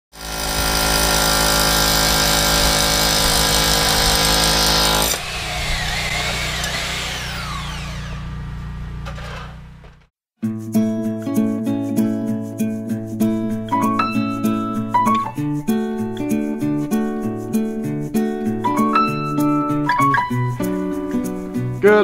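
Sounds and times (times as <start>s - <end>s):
power tool whining and winding down: 0.2s - 10.0s.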